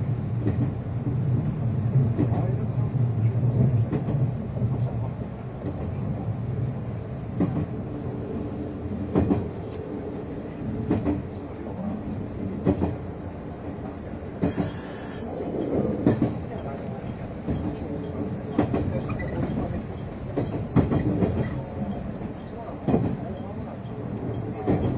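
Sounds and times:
train wheels rumbling on rails: 0.0 - 24.9
rail-joint clack: 14.4 - 24.9.

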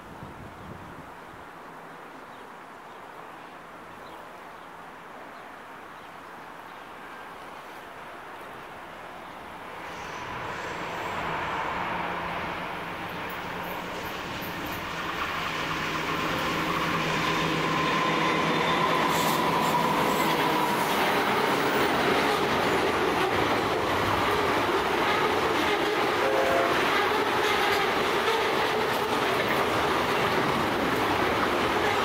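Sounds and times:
diesel locomotives passing: 8.5 - 32.0
train wheel clatter: 13.2 - 32.0
thin wheel squeal: 17.7 - 20.9.

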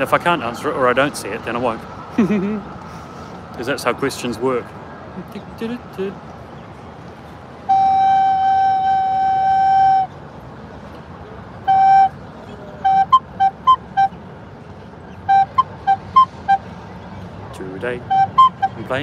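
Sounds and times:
soprano recorder playing: 7.6 - 10.1, 11.6 - 14.2, 15.2 - 16.7, 18.0 - 19.0.

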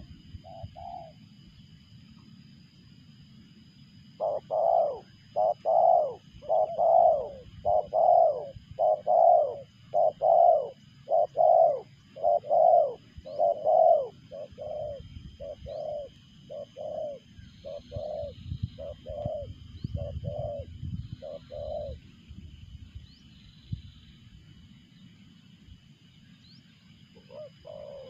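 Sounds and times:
dove cooing: 0.0 - 1.3, 4.2 - 22.0, 27.1 - 28.0.

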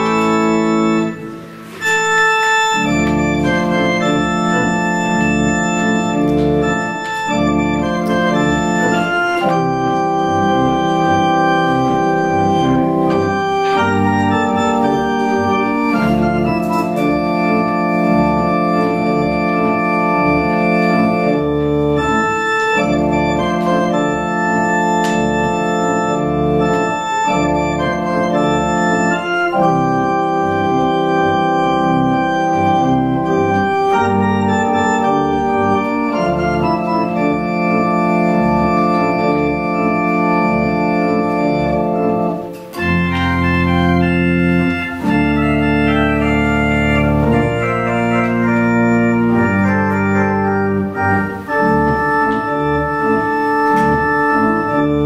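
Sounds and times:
organ playing chords: 0.0 - 55.0.

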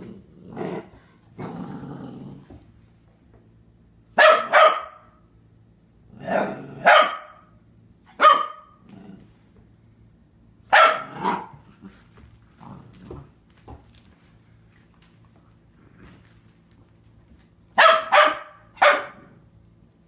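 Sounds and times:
puppy barking: 4.2 - 5.2, 6.8 - 7.5, 8.1 - 8.8, 10.7 - 11.6, 17.8 - 19.4.

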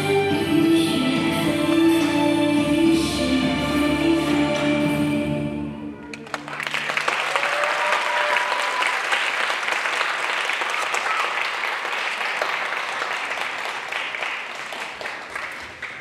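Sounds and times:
audience applauding: 6.1 - 16.0.

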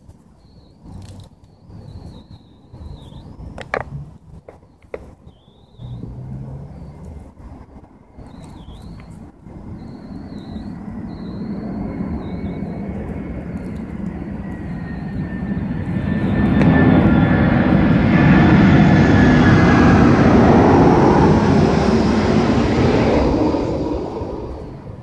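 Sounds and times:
vehicle passing by: 5.7 - 9.0, 15.6 - 25.0.

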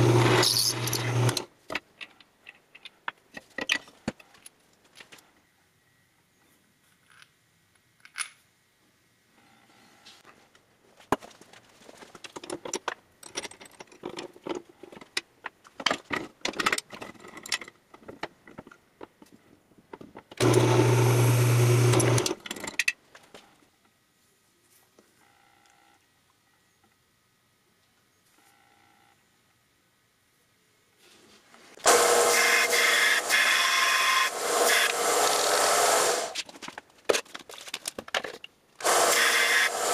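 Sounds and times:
drill press humming: 0.0 - 1.5, 20.4 - 22.4, 31.8 - 36.4, 38.8 - 39.9.

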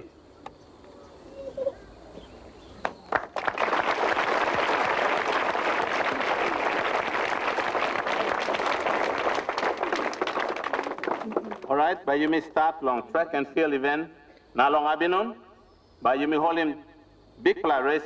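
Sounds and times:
large crowd clapping: 2.8 - 11.8.

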